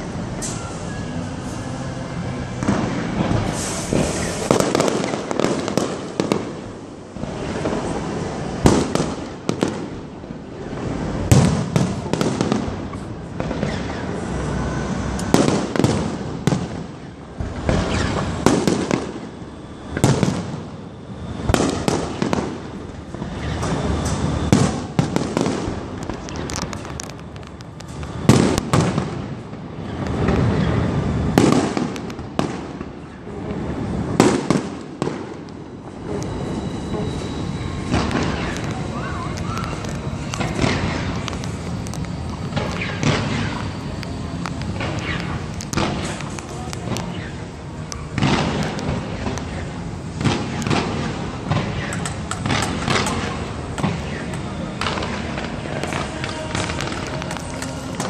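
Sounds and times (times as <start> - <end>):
firework shells bursting: 21.4 - 32.9, 34.1 - 47.3, 47.9 - 58.0.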